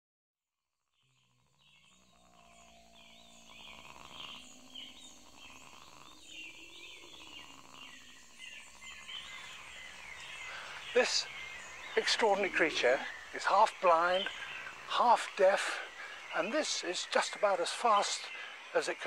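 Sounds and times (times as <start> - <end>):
insects humming: 0.8 - 19.0
birds chirping and calling: 1.0 - 19.0
low drone tones: 1.2 - 16.6.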